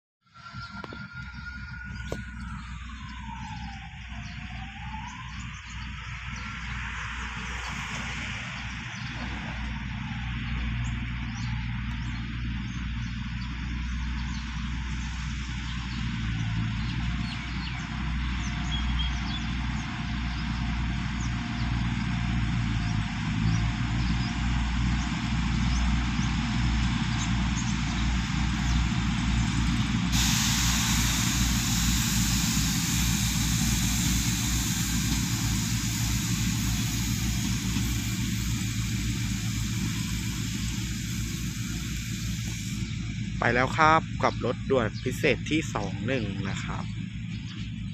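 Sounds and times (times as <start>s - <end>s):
diesel train engine drone: 0.2s - 47.9s
steady hiss: 30.1s - 43.1s.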